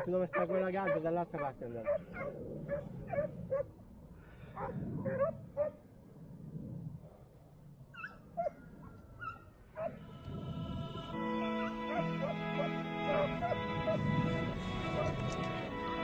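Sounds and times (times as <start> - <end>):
hounds yelping: 0.0 - 3.7, 4.6 - 5.8, 7.9 - 10.1, 11.9 - 14.0, 14.9 - 15.3
music: 10.7 - 16.0.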